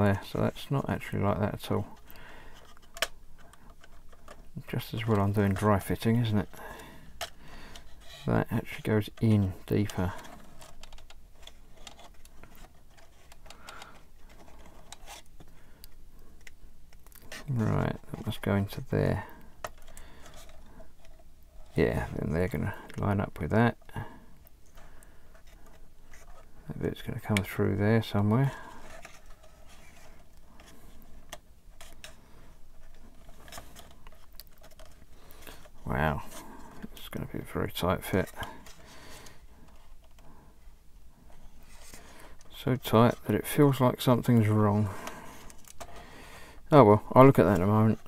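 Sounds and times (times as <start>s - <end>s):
light rubbing of plastic parts: 0.0s - 48.0s
plastic parts clicking: 1.6s - 4.8s, 5.5s - 17.5s, 19.2s - 21.8s, 28.2s - 37.0s, 44.2s - 46.0s.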